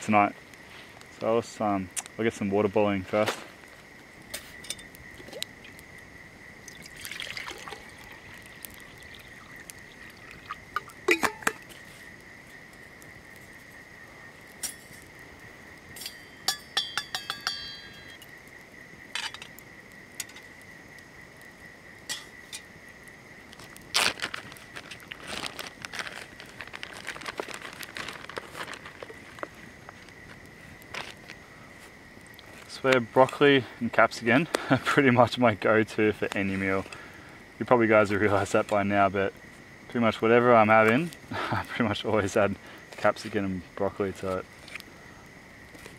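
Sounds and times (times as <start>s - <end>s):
water poured into metal mug: 6.6s - 10.9s
metal cookware clinking: 11.1s - 11.6s, 16.0s - 17.9s.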